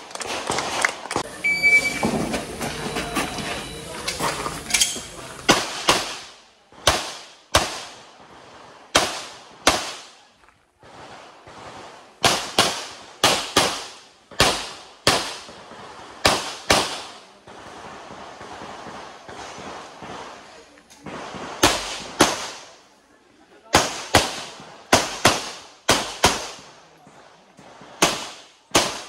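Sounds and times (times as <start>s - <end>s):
pistol shots with echo: 5.5s - 8.1s, 8.9s - 10.3s, 11.4s - 20.3s, 21.2s - 22.8s, 23.7s - 26.8s, 27.8s - 29.0s.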